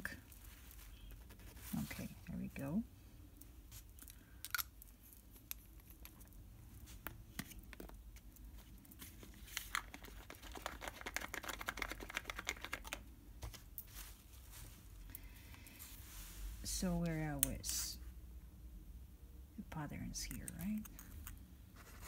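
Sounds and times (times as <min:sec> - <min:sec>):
quick ticking and crinkling: 0:03.9 - 0:13.1.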